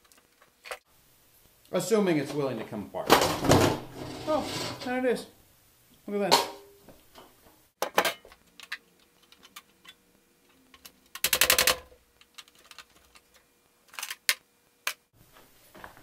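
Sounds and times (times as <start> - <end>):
computer parts clicking and knocking: 7.8 - 10.0, 10.6 - 15.1.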